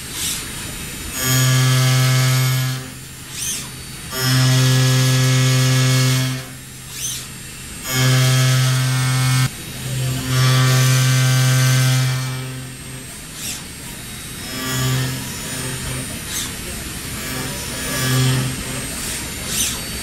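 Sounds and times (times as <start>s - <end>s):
milling cutter buzzing: 0.0s - 20.0s.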